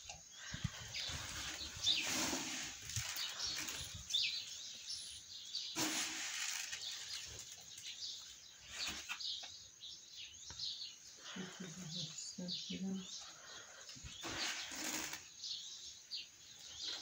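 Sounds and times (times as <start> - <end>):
small birds chirping: 0.0 - 17.0
swishing rustle: 1.0 - 4.1.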